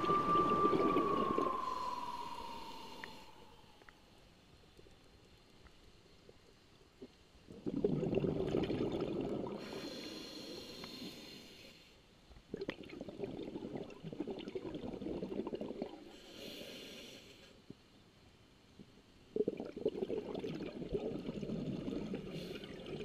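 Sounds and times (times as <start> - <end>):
bubbling exhalation underwater: 0.0 - 3.4, 7.5 - 9.8, 12.5 - 16.1, 19.4 - 23.0
regulator hiss on inhalation: 0.0 - 3.8, 9.6 - 12.0, 16.1 - 17.6.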